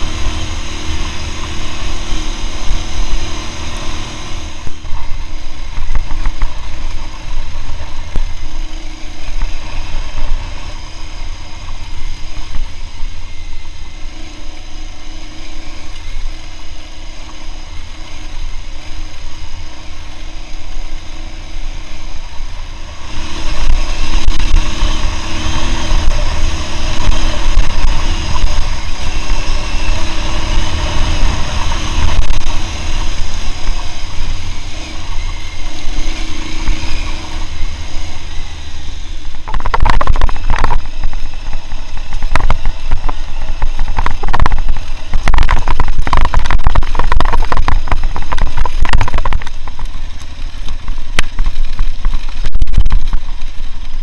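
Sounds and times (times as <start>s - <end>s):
heavy low rumble: 0.0s - 54.0s
motorcycle engine running: 0.0s - 54.0s
sharp knocks and rattles: 39.3s - 54.0s.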